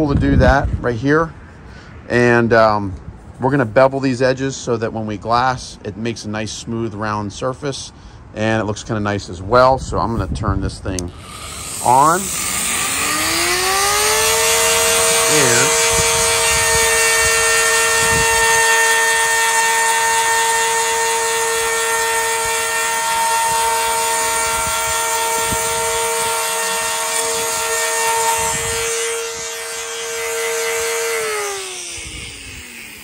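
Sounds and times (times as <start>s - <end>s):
trim router whining: 11.0s - 33.0s.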